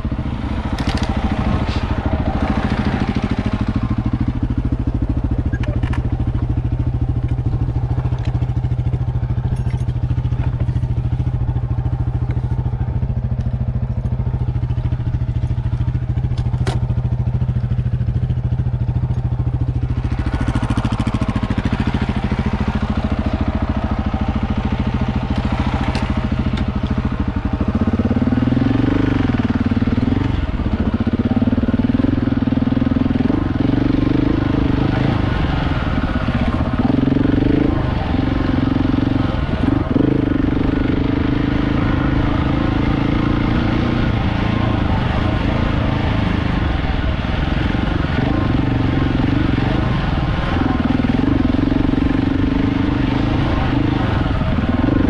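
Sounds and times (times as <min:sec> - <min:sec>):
rushing noise: 0:00.0 - 0:05.0
motorcycle engine running: 0:00.0 - 0:55.0.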